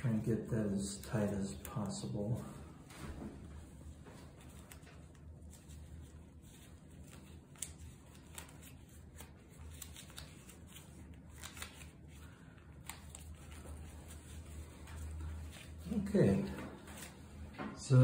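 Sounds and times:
low steady hum: 0.0 - 18.0
fabric and gloves rustling: 1.5 - 17.6.

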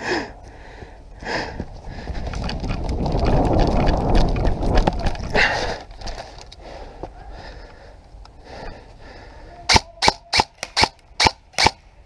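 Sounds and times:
footsteps running on dry leaves: 1.6 - 5.7.

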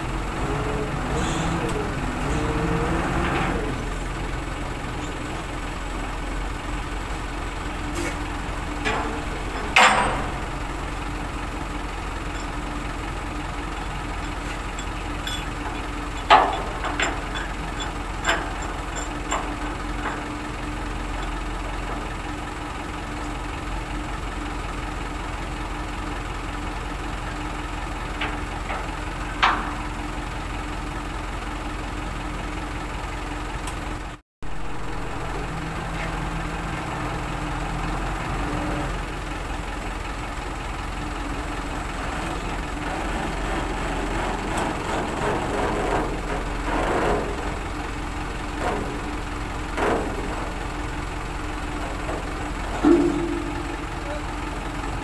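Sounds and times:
engine idling: 0.0 - 55.0.

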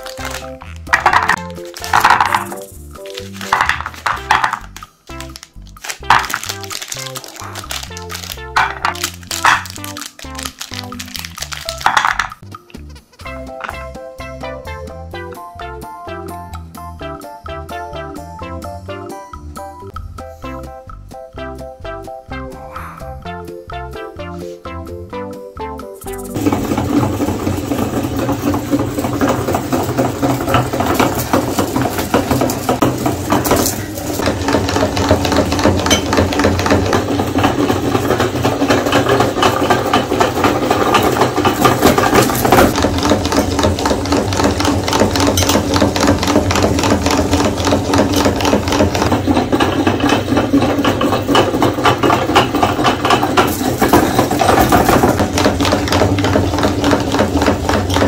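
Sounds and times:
meat grinder grinding: 0.0 - 12.4, 26.2 - 58.0.

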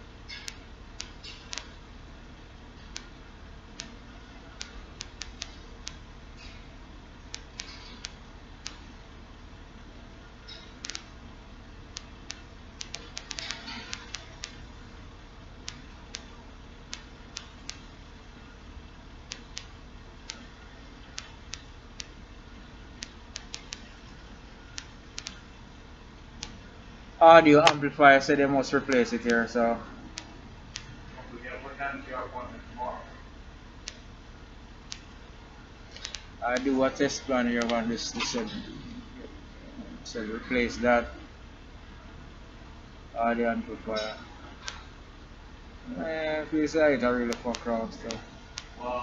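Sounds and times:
faint steady hum: 0.0 - 49.0
computer mouse clicking: 10.5 - 11.1, 12.0 - 14.6, 19.3 - 20.5, 21.1 - 22.2, 23.0 - 24.0, 24.7 - 25.4, 35.9 - 36.7.

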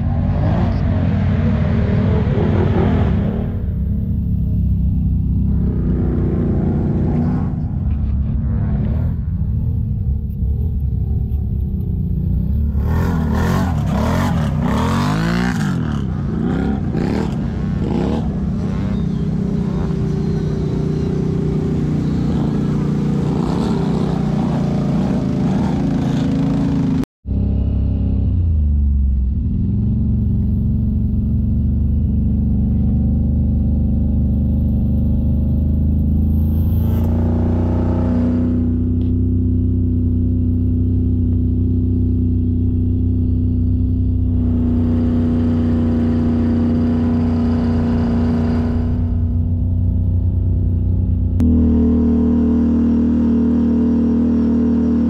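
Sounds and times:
off-road vehicle driving through mud water: 0.0 - 3.7, 12.6 - 27.0
quads revving past: 12.6 - 27.0, 44.2 - 49.6
atv engine idling: 18.3 - 36.4, 38.9 - 52.6.

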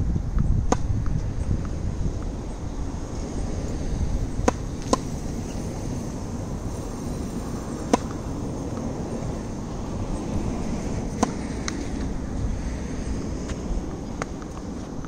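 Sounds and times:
tennis ball being struck: 0.6 - 1.8, 4.4 - 5.2, 7.8 - 8.9, 11.0 - 12.0.

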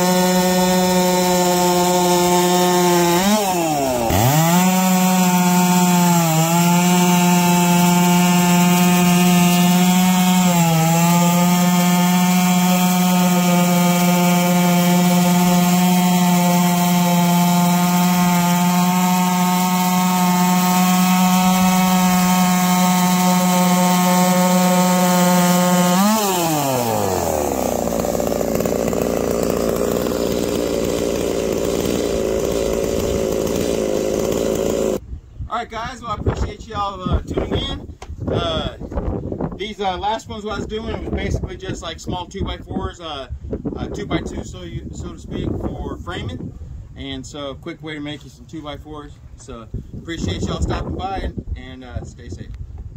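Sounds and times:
chainsaw cutting wood: 0.0 - 35.0.

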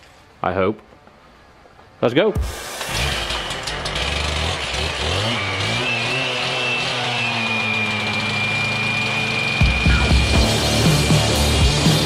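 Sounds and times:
cut-off saw cutting concrete: 2.4 - 12.0.

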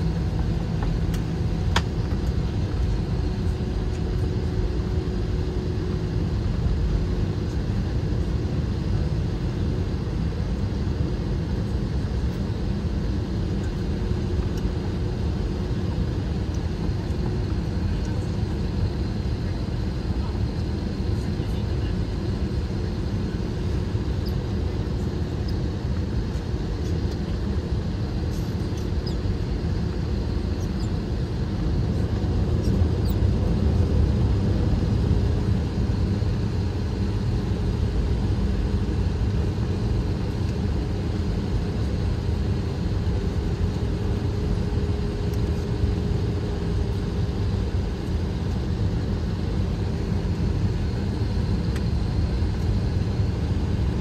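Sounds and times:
faint steady hum: 0.0 - 54.0
jet engines running: 0.0 - 54.0.

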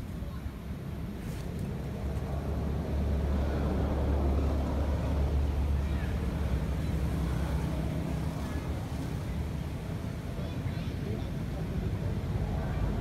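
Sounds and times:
low engine-like rumble: 0.0 - 13.0.

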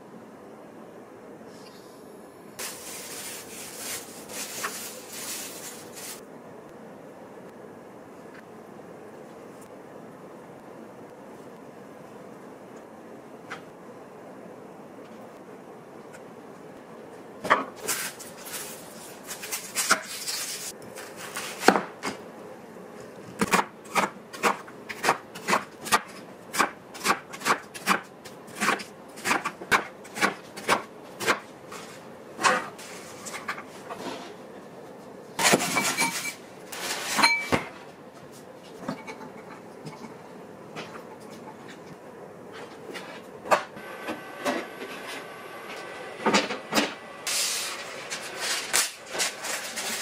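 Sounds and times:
plastic wrap rustling: 2.6 - 6.2, 17.9 - 21.6, 47.8 - 50.0.

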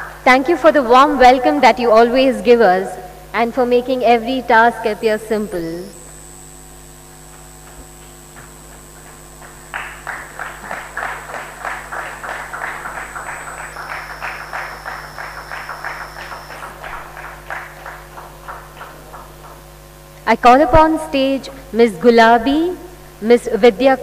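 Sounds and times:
low hum: 0.0 - 23.2
small group applauding: 7.6 - 19.6.

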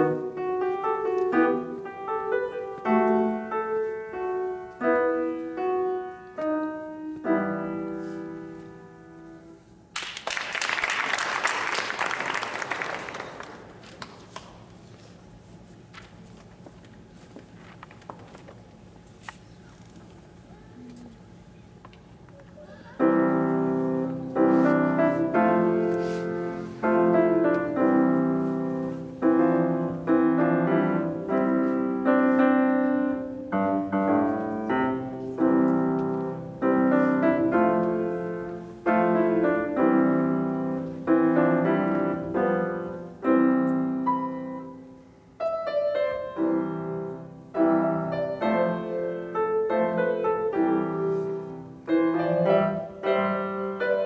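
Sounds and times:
solo classical piano: 0.0 - 9.8, 22.8 - 54.0.

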